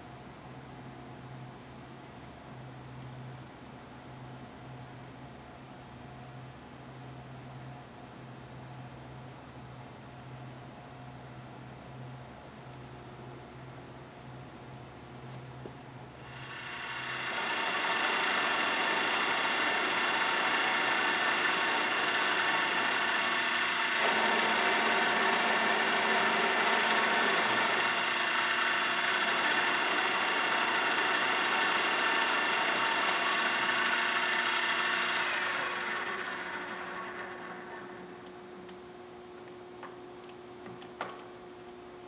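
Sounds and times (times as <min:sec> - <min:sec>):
drill press motor with gear whine: 0:16.2 - 0:38.4.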